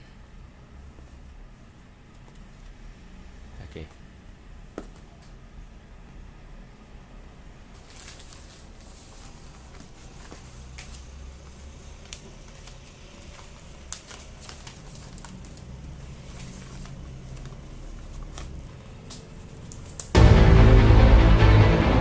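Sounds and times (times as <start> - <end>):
wrapping paper being folded: 7.7 - 20.2
loud music: 20.2 - 22.0
low hum: 20.2 - 22.0.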